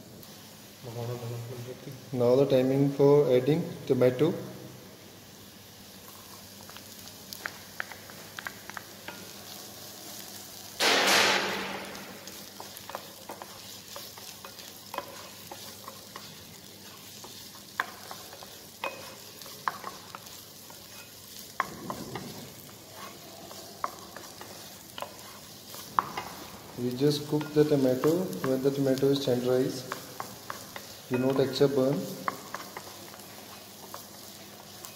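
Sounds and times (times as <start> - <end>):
tomatoes sizzling in a saucepan: 0.0 - 34.9
sudden loud hiss: 10.7 - 12.4
wooden spatula scraping a pan: 11.9 - 34.9.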